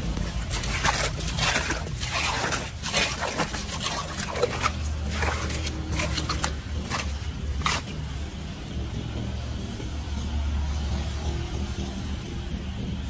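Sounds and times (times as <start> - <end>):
hand rake scraping through muddy water: 0.0 - 8.2.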